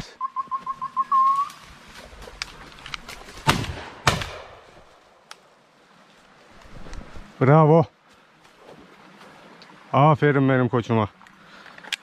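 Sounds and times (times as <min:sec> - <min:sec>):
whistled high pips: 0:00.1 - 0:01.6
shotgun shots: 0:03.4 - 0:04.7.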